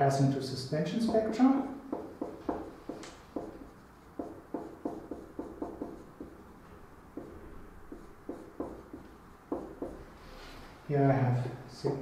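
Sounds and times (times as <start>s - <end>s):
writing taps and strokes on board: 1.0s - 6.4s, 7.2s - 10.0s.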